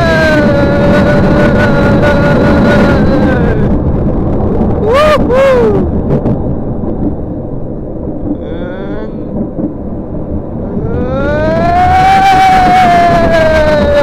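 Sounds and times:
person yelling: 0.0s - 3.7s, 4.8s - 5.9s, 10.7s - 14.0s
roller coaster rumbling on track: 0.0s - 14.0s
wind on microphone: 0.0s - 14.0s.

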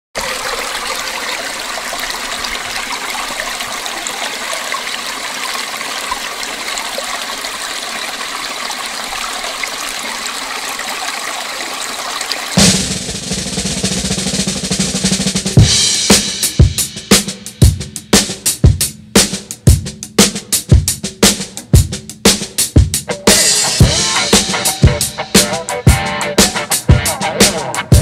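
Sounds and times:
running water rushing: 0.1s - 15.4s.

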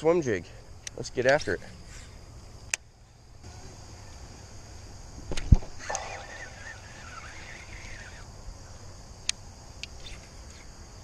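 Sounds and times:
fishing reel spool whirring: 5.8s - 8.3s
high-pitched background drone: 5.8s - 8.3s.

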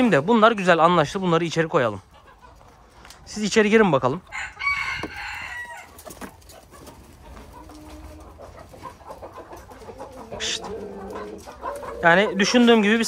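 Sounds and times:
chickens clucking softly: 0.0s - 13.0s
chicken loud call: 4.3s - 6.0s, 9.3s - 12.8s.

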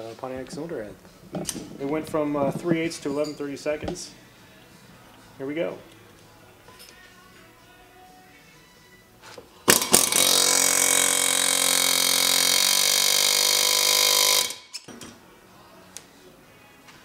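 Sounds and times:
pneumatic air hammer rattling: 9.7s - 14.9s.

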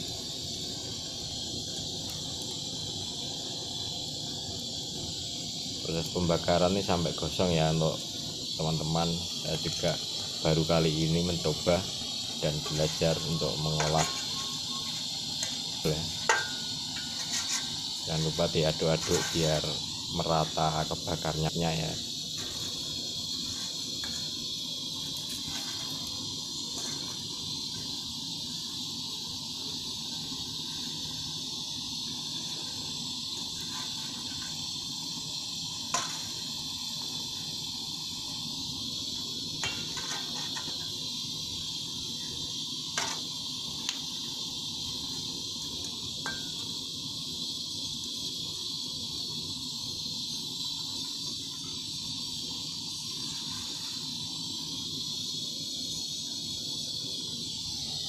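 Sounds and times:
torch hissing: 0.0s - 58.0s
metal rod tapping in bowl: 16.3s - 17.5s.

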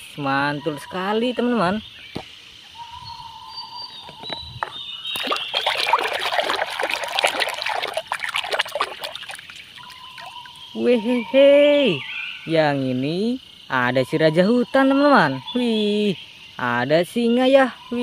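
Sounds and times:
hand splashing in soapy water: 5.2s - 10.3s.

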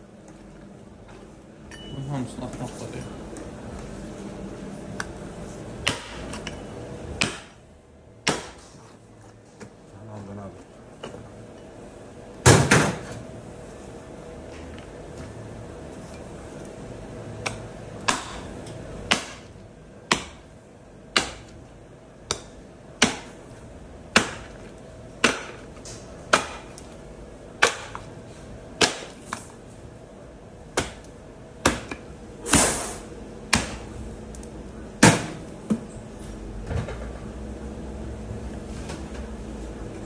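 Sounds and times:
cleaver chopping on wooden block: 5.8s - 6.3s, 7.2s - 7.6s, 8.2s - 8.6s, 17.4s - 18.5s, 19.1s - 19.5s, 20.1s - 20.5s, 21.2s - 21.6s, 22.3s - 23.4s, 24.1s - 24.6s, 25.2s - 25.6s, 26.3s - 26.8s, 27.6s - 28.0s, 28.8s - 29.2s, 30.8s - 31.0s, 31.6s - 32.0s, 33.5s - 33.9s.

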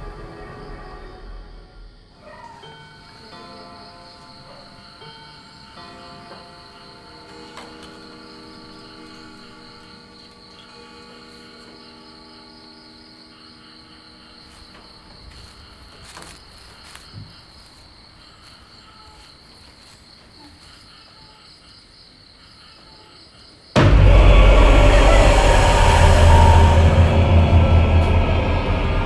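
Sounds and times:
scary film music: 0.0s - 16.2s, 23.8s - 29.0s
crickets chirping: 0.0s - 29.0s.

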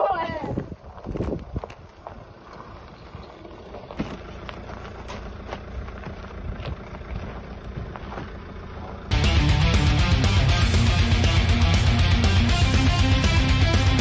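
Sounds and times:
wind buffeting microphone: 0.0s - 3.8s
van engine running: 1.7s - 14.0s.

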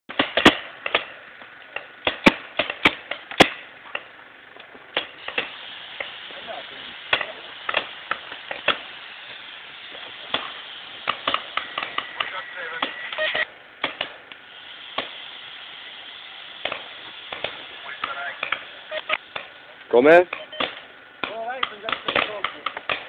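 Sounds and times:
paintball markers firing: 0.1s - 4.1s, 7.1s - 8.9s, 9.9s - 13.1s, 13.8s - 14.2s, 16.6s - 18.7s, 20.3s - 23.0s.

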